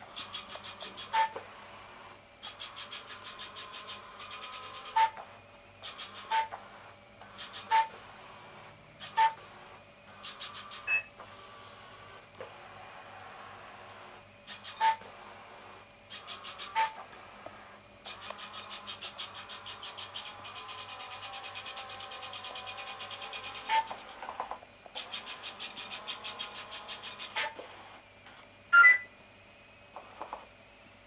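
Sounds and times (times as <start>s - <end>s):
rapid mechanical clicking: 0.1s - 1.2s, 2.4s - 5.0s, 10.2s - 10.9s, 18.0s - 27.4s
robot beeping tones: 28.7s - 29.1s
high robot chirp: 28.8s - 29.1s.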